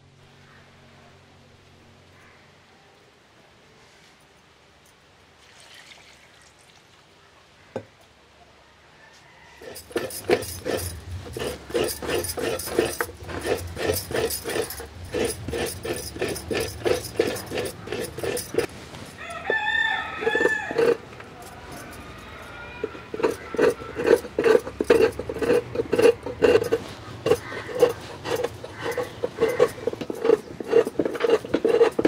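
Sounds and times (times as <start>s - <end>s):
rooster crowing: 8.6s - 11.0s, 19.1s - 24.4s
coconut grating rasping strokes: 9.5s - 32.0s.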